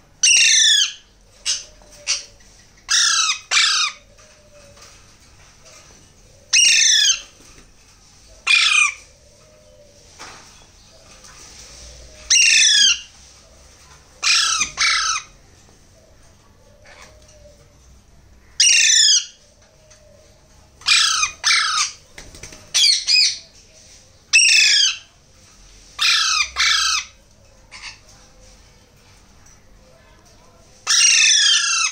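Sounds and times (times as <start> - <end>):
parakeet chicks squawking: 0.2 - 4.2, 6.5 - 7.3, 8.4 - 9.1, 12.3 - 13.1, 14.2 - 15.4, 18.6 - 19.4, 20.8 - 22.0, 24.3 - 25.1, 26.0 - 28.1, 30.8 - 31.9.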